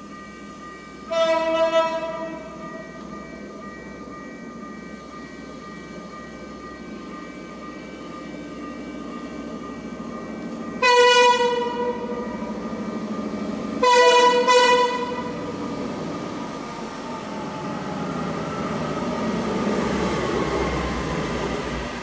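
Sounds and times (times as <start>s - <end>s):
train rumble: 0.0s - 22.0s
train air horn blasts: 1.1s - 2.5s, 10.8s - 12.1s, 13.8s - 15.3s.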